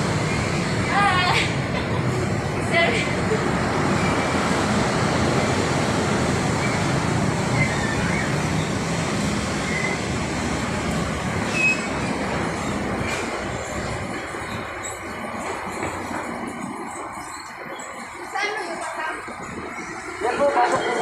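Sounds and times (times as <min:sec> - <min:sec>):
escalator rumbling: 0:00.0 - 0:21.0
high squeaks: 0:11.4 - 0:18.7.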